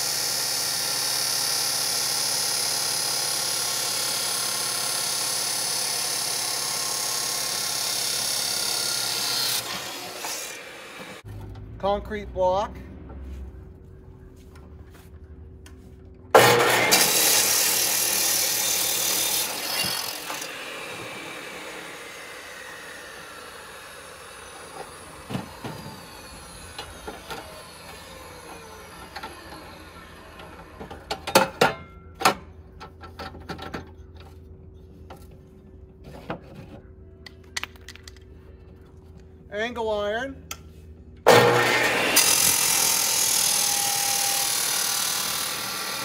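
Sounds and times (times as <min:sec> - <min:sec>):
saw cutting concrete: 0:00.0 - 0:11.3, 0:16.4 - 0:30.9, 0:41.3 - 0:46.0
saw blade spinning down whine: 0:16.4 - 0:30.8, 0:41.3 - 0:46.0.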